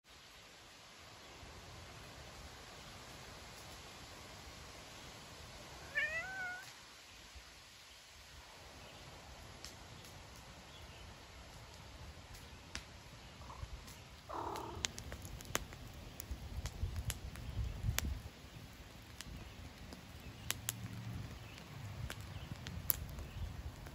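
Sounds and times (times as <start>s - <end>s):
cat meowing: 5.8s - 6.7s, 14.3s - 14.9s
wood fire crackling and popping: 9.4s - 23.9s.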